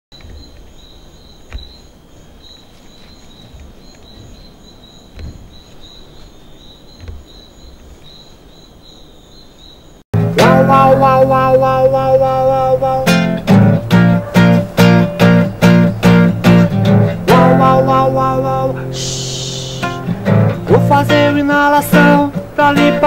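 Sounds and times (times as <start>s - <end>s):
insects chirping in trills: 0.1s - 23.0s
soft low thumps: 3.4s - 5.9s
acoustic guitar chord: 10.2s - 23.0s.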